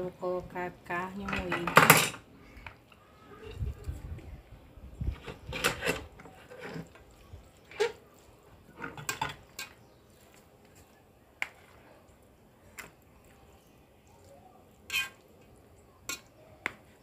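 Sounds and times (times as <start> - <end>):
spoon clinking against dishes: 16.0 - 16.4.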